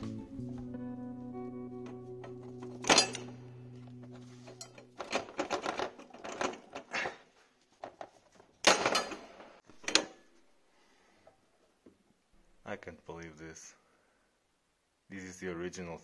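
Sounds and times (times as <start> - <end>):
background music: 0.0 - 6.1
pliers clicking on metal: 2.8 - 3.3.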